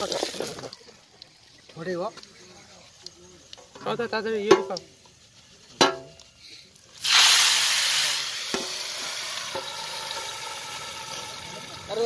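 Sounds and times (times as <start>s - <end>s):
food sizzling: 0.0s - 12.0s
metal utensil knocking pot: 4.4s - 4.8s, 5.8s - 6.2s.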